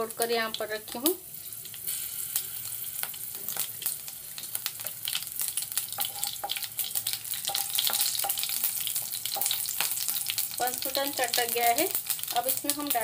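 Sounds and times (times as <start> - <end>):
seeds sizzling and popping in oil: 0.0 - 13.0
spatula scraping pan: 5.8 - 10.5.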